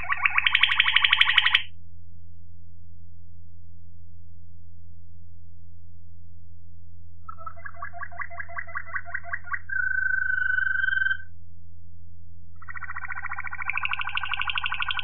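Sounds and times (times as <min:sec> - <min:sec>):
canary singing: 0:00.0 - 0:01.7, 0:07.3 - 0:11.3, 0:12.6 - 0:15.0
steady low hum: 0:11.3 - 0:12.7.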